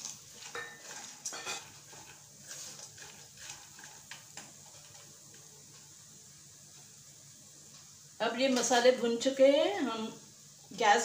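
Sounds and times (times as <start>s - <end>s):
spatula stirring peanuts in pan: 0.0s - 8.8s.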